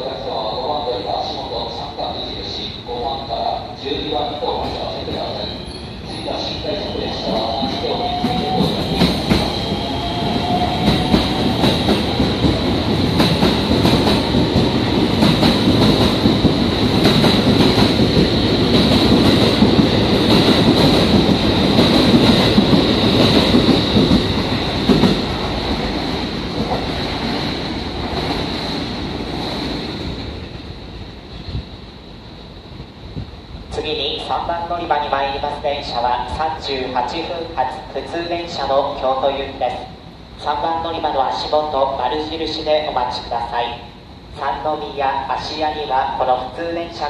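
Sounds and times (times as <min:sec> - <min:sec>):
train cars rumbling: 0:00.0 - 0:47.0
steady high squeal: 0:05.3 - 0:11.8.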